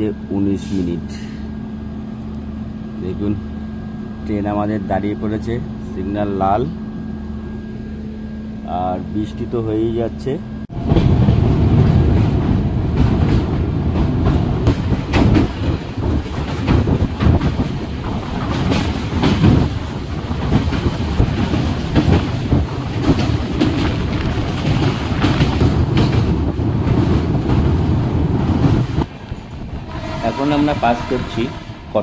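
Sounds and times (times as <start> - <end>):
train rumbling on rails: 0.0 - 32.0
wheels clattering over rail joints: 10.8 - 29.8.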